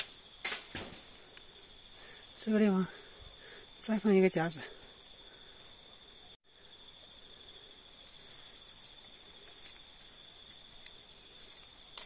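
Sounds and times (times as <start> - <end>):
insects droning: 0.0 - 12.0
small rustles: 7.8 - 12.0.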